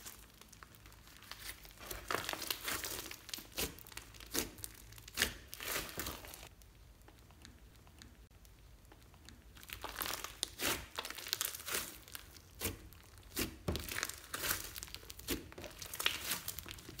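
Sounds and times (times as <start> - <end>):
slime crackling and popping: 0.0 - 17.0.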